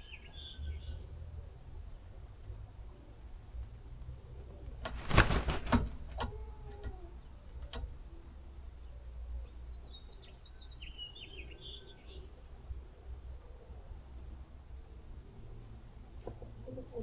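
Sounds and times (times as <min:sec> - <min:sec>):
small birds chirping: 0:00.0 - 0:01.2, 0:08.6 - 0:12.3
rooster feathers rustling: 0:04.7 - 0:06.2.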